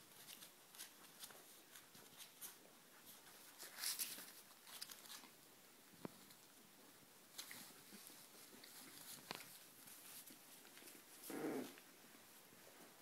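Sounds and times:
puppy paws rustling on blanket: 0.0 - 6.6, 7.2 - 13.0.

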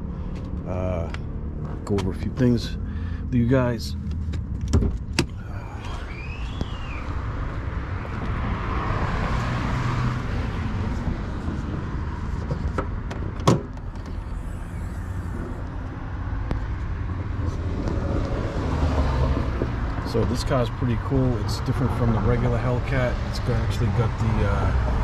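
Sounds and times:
car engine idling: 0.0 - 8.3, 11.5 - 17.6.

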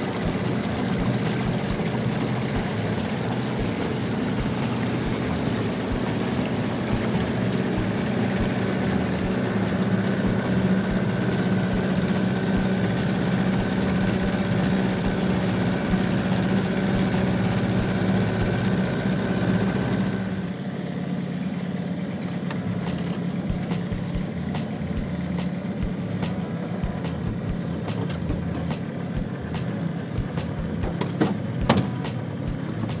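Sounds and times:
water and wind hiss: 0.0 - 22.0
boat motor droning: 0.0 - 33.0.

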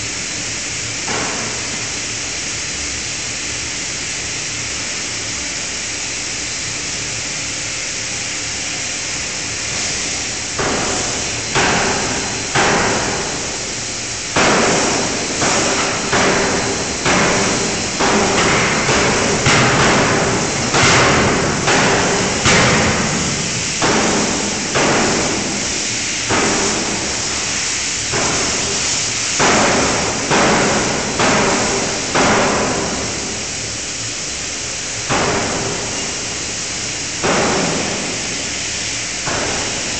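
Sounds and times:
steady hiss: 0.0 - 39.9
heavy forging hammer blows: 14.4 - 33.4.

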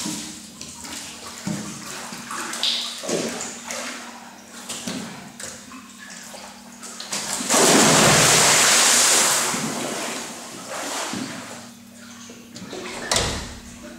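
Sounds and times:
water churning and sloshing: 0.0 - 13.9
big splash into pool: 7.4 - 11.5.

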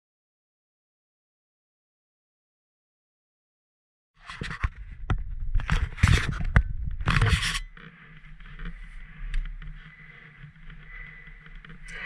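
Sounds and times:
scraping and rustling: 5.6 - 12.0.

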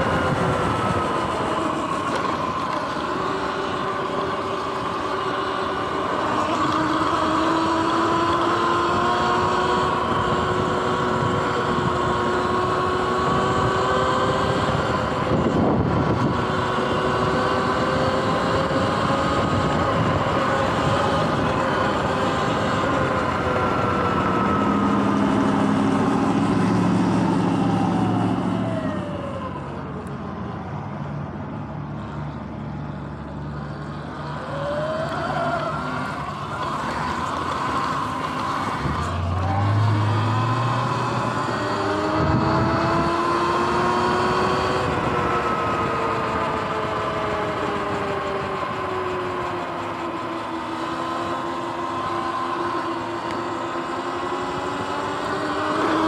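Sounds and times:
wind noise: 0.0 - 5.3, 5.9 - 29.3, 36.5 - 49.6
electric motor whine: 0.0 - 30.2, 33.8 - 56.0.

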